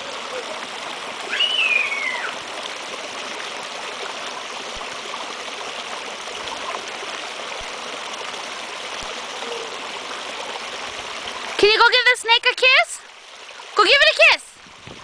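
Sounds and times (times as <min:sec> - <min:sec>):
high-pitched voice squeal: 0:01.3 - 0:02.4.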